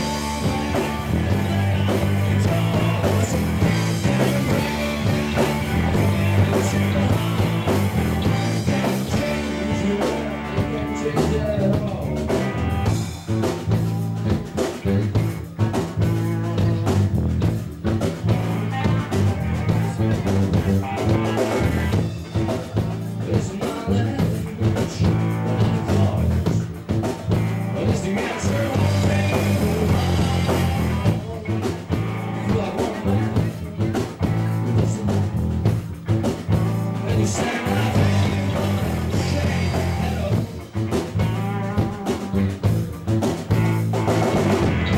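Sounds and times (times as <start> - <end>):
rock band playing live: 0.0 - 44.9.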